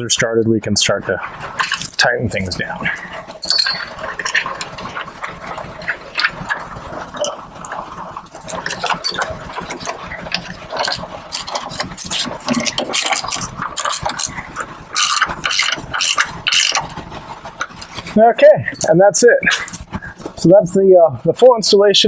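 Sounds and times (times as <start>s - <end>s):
metal hardware clicking and clattering: 1.6s - 2.1s, 3.4s - 6.4s.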